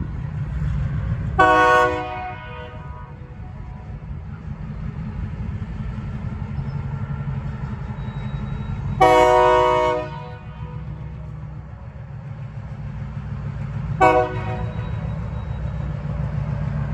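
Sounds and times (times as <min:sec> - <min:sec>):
diesel locomotive rumbling: 0:00.0 - 0:16.9
locomotive horn blast: 0:01.4 - 0:04.0, 0:08.9 - 0:11.3, 0:14.0 - 0:15.1.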